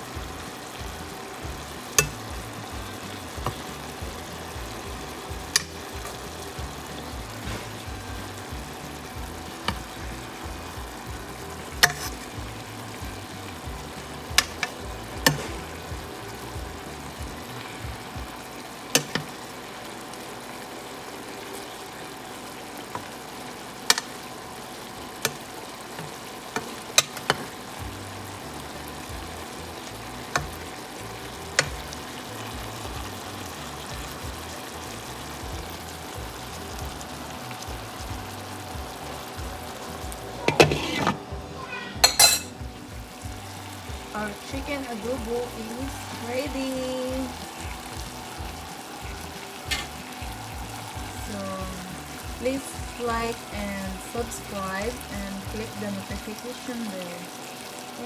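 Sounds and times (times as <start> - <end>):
sauce bubbling and sizzling: 0.0 - 58.0
metal spoon clinking on pan: 42.0 - 42.5.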